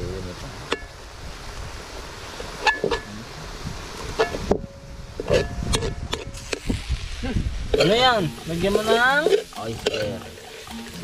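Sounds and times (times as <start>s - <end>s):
utensil clanking on metal pot: 7.7s - 11.0s.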